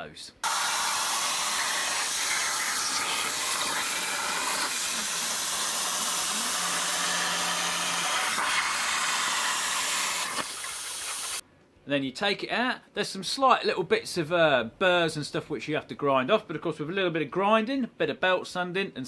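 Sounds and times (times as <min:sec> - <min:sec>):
plasma torch hissing: 0:00.4 - 0:07.0.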